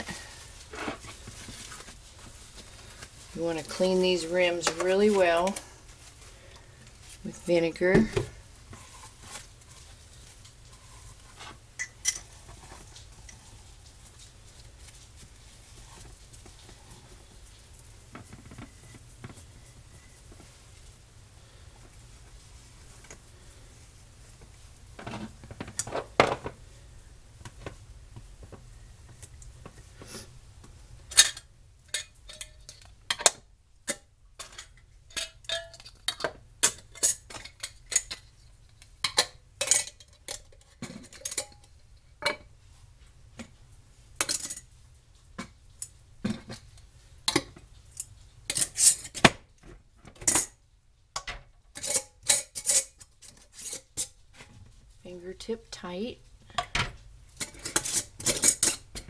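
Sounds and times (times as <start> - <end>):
metal lids clinking on glass jars: 51.2 - 54.1.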